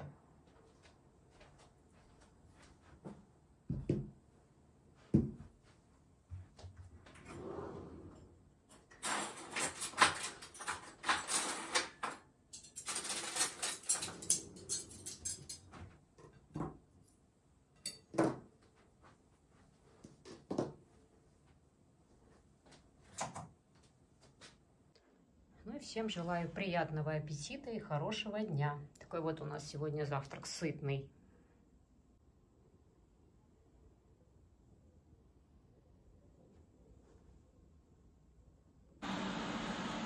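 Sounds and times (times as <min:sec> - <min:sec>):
clattering and scraping: 0:07.1 - 0:16.5
cutlery clinking: 0:09.0 - 0:15.8, 0:17.8 - 0:18.2.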